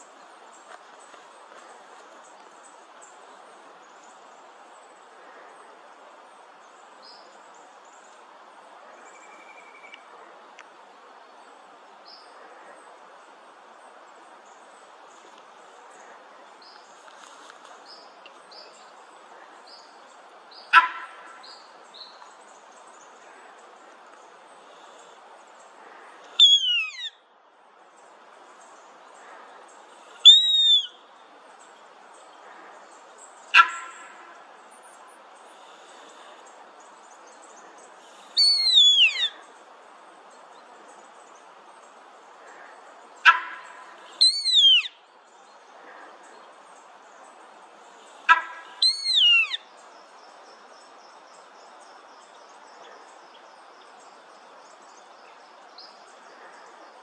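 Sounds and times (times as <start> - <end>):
small birds chirping: 12.0 - 27.2, 27.9 - 33.7, 34.4 - 57.0
deer bark-like alarm call: 20.7 - 21.2, 26.4 - 27.1, 30.3 - 30.9, 33.5 - 34.0, 43.2 - 44.9, 48.3 - 49.6
bird whistling: 26.4 - 27.2, 30.2 - 31.0, 38.4 - 39.4, 44.2 - 45.0, 48.3 - 49.6.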